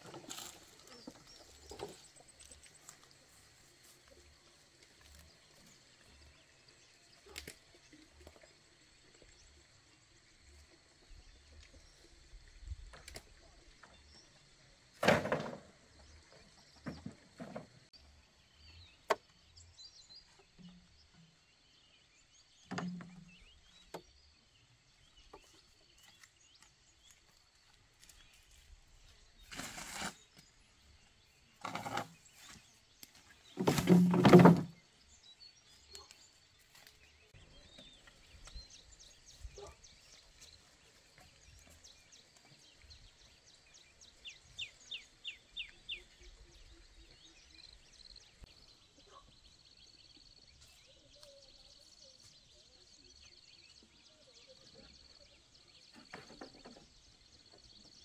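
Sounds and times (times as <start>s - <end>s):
bamboo poles knocking and clattering: 15.0s - 15.8s, 22.7s - 23.3s, 31.6s - 34.8s
bird chirping: 18.0s - 58.0s.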